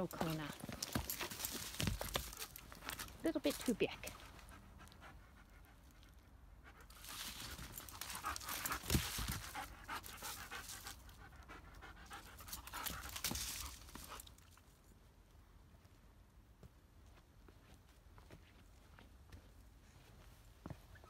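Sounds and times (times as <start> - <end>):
dog panting hard: 4.1 - 13.3.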